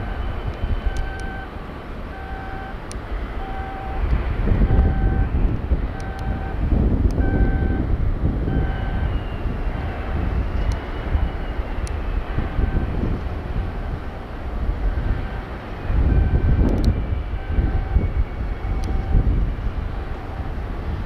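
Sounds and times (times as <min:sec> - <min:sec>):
warning beeper beeping: 0:00.0 - 0:01.5, 0:02.1 - 0:02.8, 0:03.4 - 0:04.0, 0:04.7 - 0:05.4, 0:06.0 - 0:06.6, 0:07.2 - 0:07.8, 0:08.5 - 0:09.1, 0:18.8 - 0:19.3
low steady rumble: 0:00.0 - 0:21.0.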